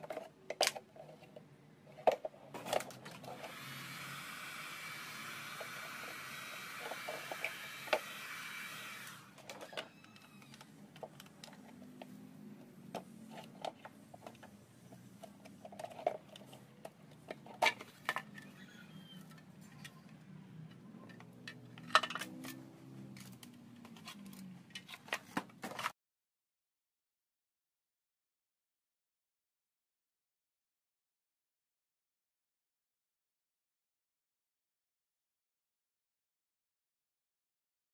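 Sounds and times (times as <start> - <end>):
plastic clicks and scrapes: 0.0 - 3.6, 9.4 - 26.0
heat gun blowing: 3.2 - 10.5.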